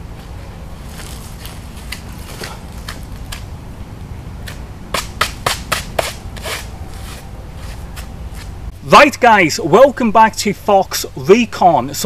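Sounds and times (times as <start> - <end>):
digging in soil and leaves: 0.8 - 3.4.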